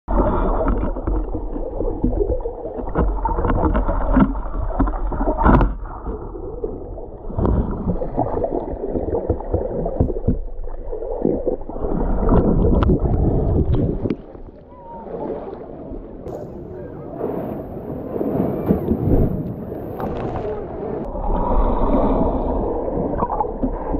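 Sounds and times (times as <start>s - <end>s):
underwater knocks and clicks: 0.1s - 14.6s
underwater sloshing and bubbling: 0.1s - 23.9s.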